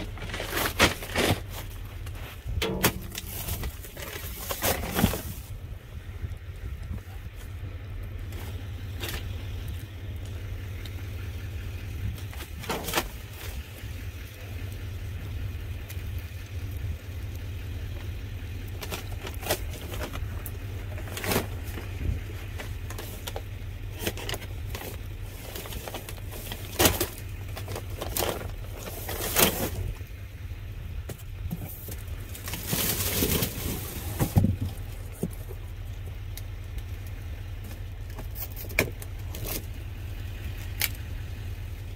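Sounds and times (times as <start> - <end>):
rummaging through boxes and bags: 0.0 - 5.6, 12.1 - 13.8, 18.8 - 30.1, 31.1 - 35.7, 37.6 - 39.8
steady low rumble: 0.0 - 41.9.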